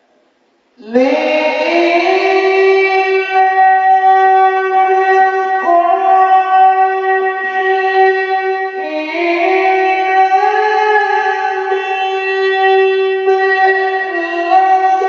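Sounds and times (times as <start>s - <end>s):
man reciting in melodic held notes: 0.8s - 15.0s.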